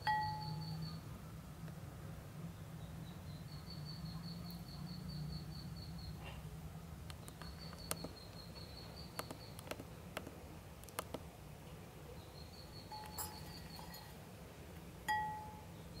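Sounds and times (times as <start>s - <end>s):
faint high whine: 0.0s - 1.4s, 15.0s - 16.0s
low room hum: 0.0s - 16.0s
ducklings peeping softly: 7.1s - 9.8s.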